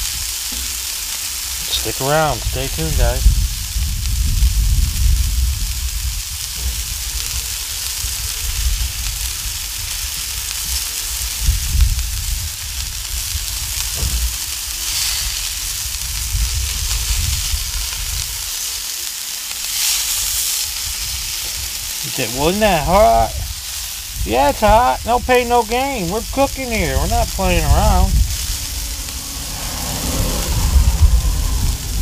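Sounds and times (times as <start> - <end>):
meat sizzling on a griddle: 0.0 - 32.0
low rumble: 28.1 - 32.0.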